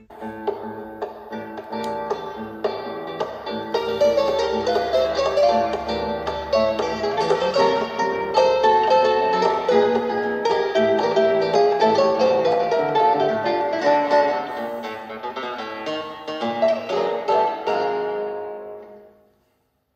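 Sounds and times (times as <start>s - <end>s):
plucked-string melody: 0.0s - 19.3s.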